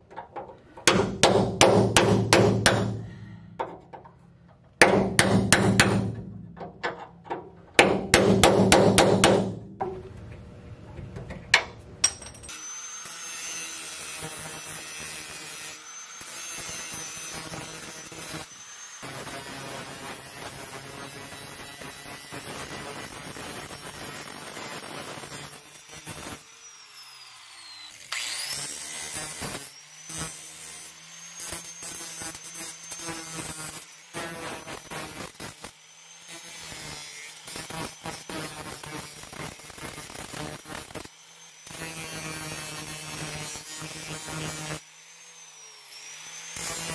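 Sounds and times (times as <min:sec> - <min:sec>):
hammer striking chisel on steel: 0:00.8 - 0:04.0, 0:04.8 - 0:10.1
angle grinder cutting steel: 0:12.1 - 0:46.9.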